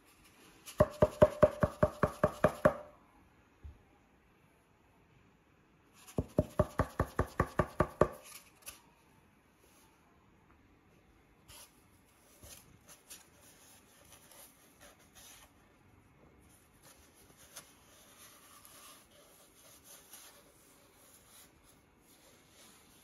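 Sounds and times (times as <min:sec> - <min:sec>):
kitten clawing cardboard tube: 0:00.6 - 0:02.9, 0:06.0 - 0:08.8.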